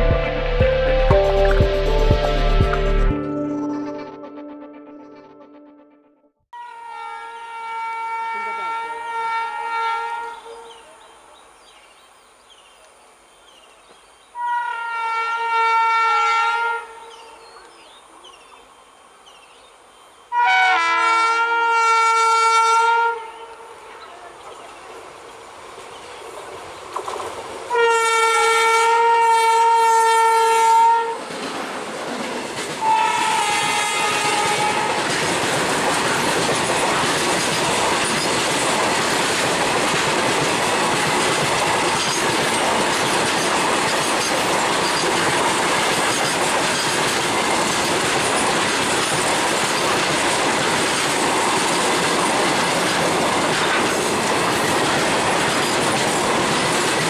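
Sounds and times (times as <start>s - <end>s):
locomotive horn blasts: 6.6s - 10.7s, 14.4s - 17.2s, 20.3s - 23.7s, 27.7s - 31.2s, 32.8s - 35.1s
train wheels clattering on rail: 31.3s - 57.0s.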